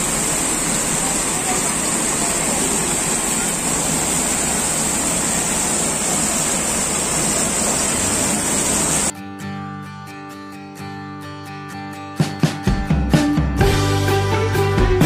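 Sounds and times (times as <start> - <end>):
fountain water splashing: 0.0 - 9.1
acoustic guitar music: 9.1 - 15.0.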